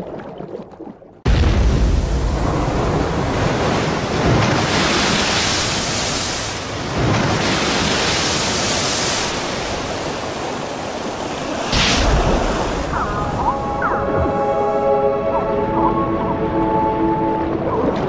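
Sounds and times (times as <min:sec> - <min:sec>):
churning water wash: 0:01.2 - 0:18.0
sea surf breaking on rocks: 0:01.3 - 0:13.4.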